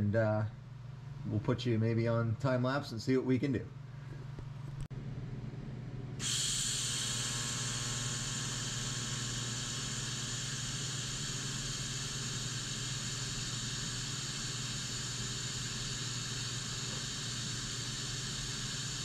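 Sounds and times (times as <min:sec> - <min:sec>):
heater hissing: 0:06.2 - 0:19.0.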